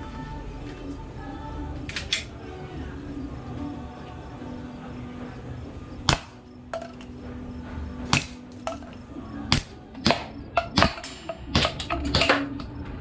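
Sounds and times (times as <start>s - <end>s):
airsoft gun shots: 8.1s - 8.4s, 9.5s - 12.5s.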